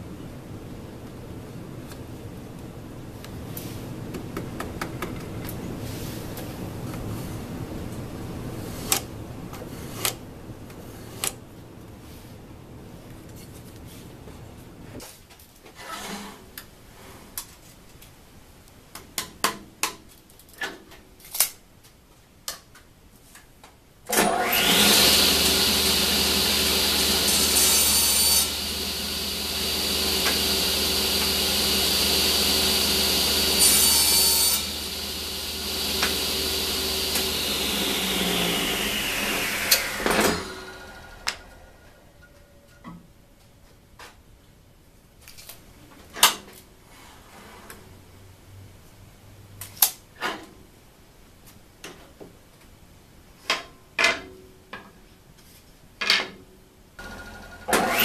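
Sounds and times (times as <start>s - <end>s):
table saw motor whining: 24.2s - 41.8s, 57.0s - 58.0s.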